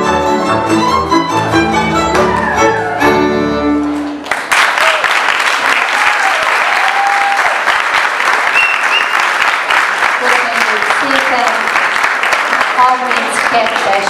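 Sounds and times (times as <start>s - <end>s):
folk band violin and double bass: 0.0s - 3.8s
audience applause: 2.1s - 14.0s.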